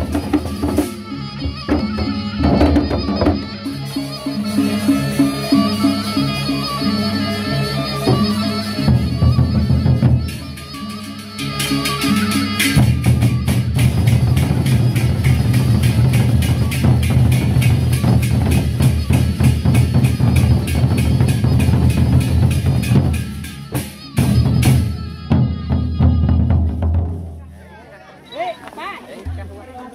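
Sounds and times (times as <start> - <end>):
heavy barrel drum beats: 0.0 - 7.0, 8.0 - 27.5, 29.2 - 29.9
crisp cymbal clashes: 10.2 - 23.9
barrel drums beaten with sticks: 12.0 - 23.5.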